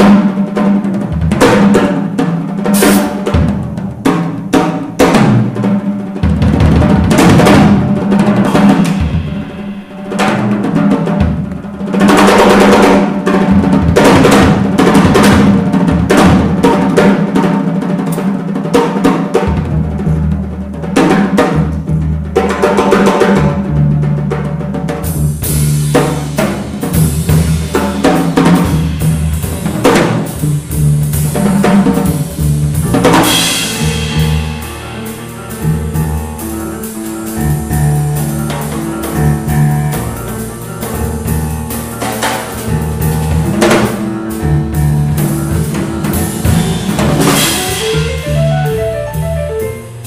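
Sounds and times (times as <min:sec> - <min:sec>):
drum kit: 0:00.0 - 0:50.0
grand piano: 0:00.0 - 0:50.0
cymbal crash: 0:08.5 - 0:10.9, 0:46.2 - 0:49.2
plucked double bass: 0:19.4 - 0:50.0.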